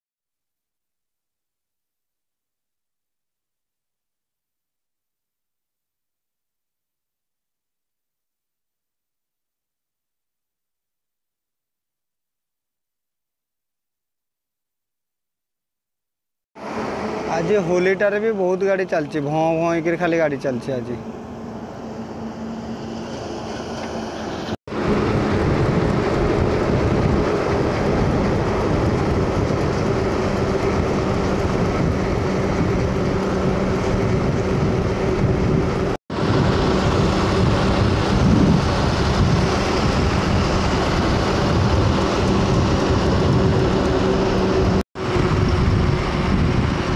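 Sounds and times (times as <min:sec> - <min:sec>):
trucks driving past: 0:16.6 - 0:46.9.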